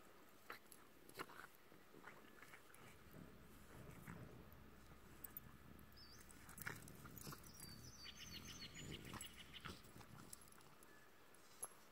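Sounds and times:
dogs moving on grass: 0:02.7 - 0:11.9
faint birds chirping: 0:03.1 - 0:11.7.

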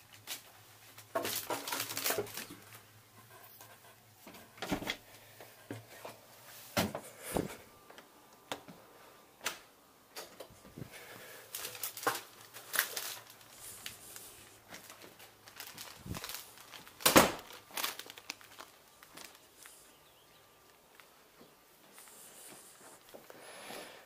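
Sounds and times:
cellophane crinkling and rustling: 0:00.0 - 0:04.6, 0:10.9 - 0:23.3.

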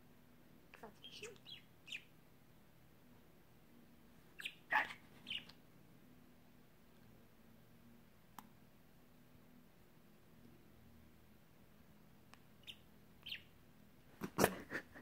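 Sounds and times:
budgerigar chirping: 0:00.8 - 0:02.1, 0:04.4 - 0:05.6, 0:12.6 - 0:13.5.

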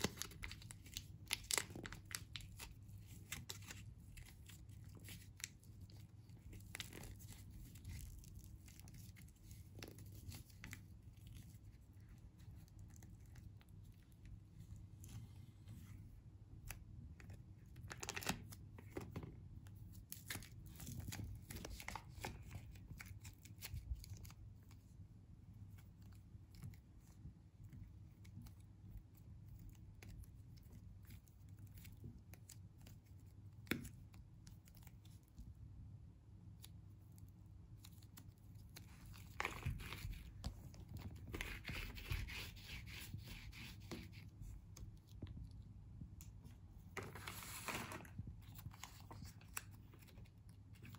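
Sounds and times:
plasticine tearing and squishing: 0:00.0 - 0:15.0, 0:16.5 - 0:35.5.

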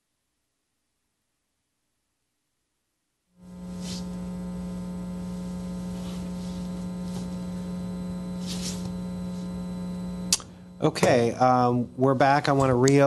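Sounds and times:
electrical mains hum: 0:03.4 - 0:13.0
faint rustles: 0:05.2 - 0:09.6.

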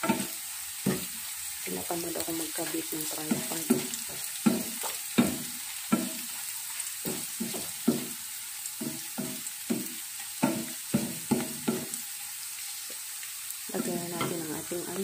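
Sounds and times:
wooden spatula scraping a frying pan: 0:00.0 - 0:01.3, 0:02.6 - 0:08.2
hot oil sizzling: 0:00.0 - 0:15.0.

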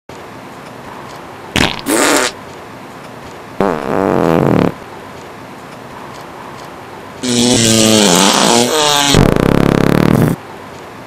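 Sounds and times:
farts: 0:01.6 - 0:02.4, 0:03.6 - 0:04.8, 0:07.2 - 0:10.4.

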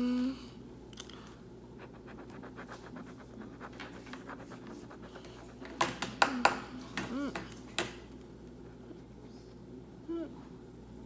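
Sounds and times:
marker scratching on paper: 0:01.8 - 0:05.7.

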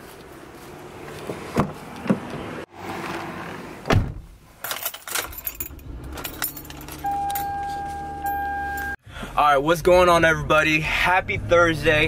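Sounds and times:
footsteps on concrete: 0:00.0 - 0:02.4
car door shutting: 0:01.2 - 0:04.3
car keys jangling: 0:04.6 - 0:09.0.

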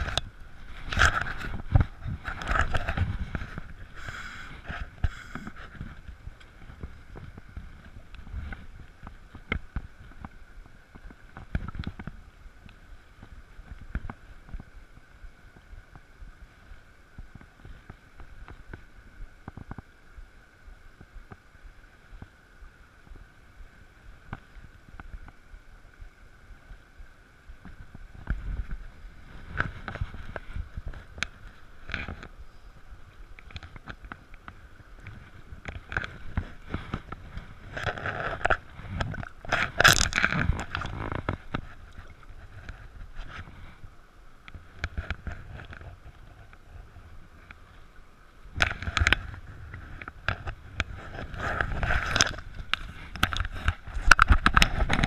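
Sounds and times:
fishing rod and line handling: 0:00.0 - 0:10.4, 0:33.3 - 0:43.6, 0:48.6 - 0:55.0
wind buffeting microphone: 0:00.0 - 0:47.5
stream burbling over stones: 0:00.0 - 0:55.0.

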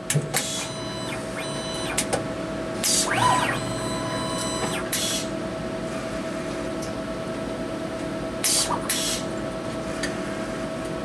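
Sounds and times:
steady machine hum: 0:00.0 - 0:11.0
stepper motors whining: 0:00.4 - 0:02.1, 0:02.8 - 0:05.3.

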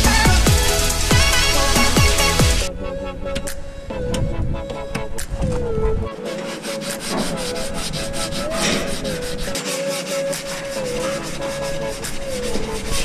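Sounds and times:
sandpaper rubbing on filler: 0:00.0 - 0:02.7, 0:06.2 - 0:13.0.

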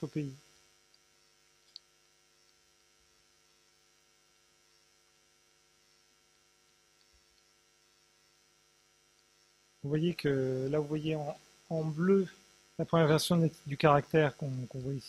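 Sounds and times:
faint mains hum: 0:00.0 - 0:15.0.

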